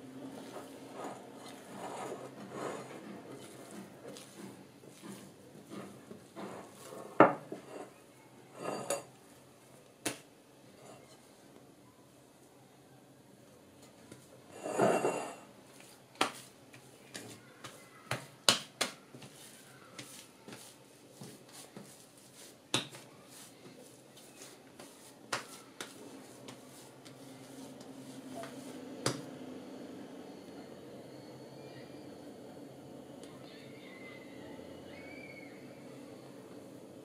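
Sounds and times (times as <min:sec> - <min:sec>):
hands kneading sticky dough: 0:00.1 - 0:06.9, 0:15.7 - 0:29.3.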